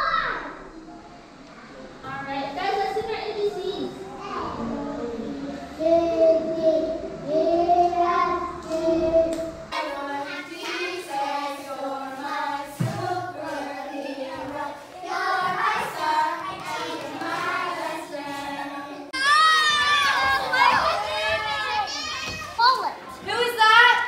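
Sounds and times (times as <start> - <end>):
children singing: 4.2 - 22.1.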